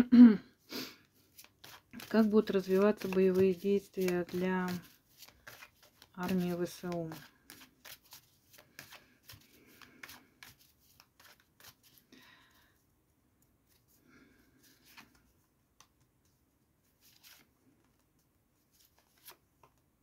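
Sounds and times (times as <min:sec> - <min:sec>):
cards shuffling: 0:01.2 - 0:12.1, 0:16.9 - 0:18.1, 0:18.7 - 0:19.8.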